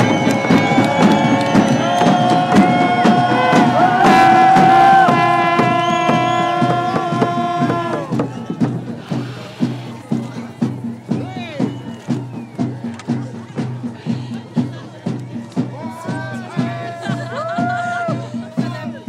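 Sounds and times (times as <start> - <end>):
crowd holding long notes: 0.0 - 19.0
hand drums beating: 0.0 - 19.0.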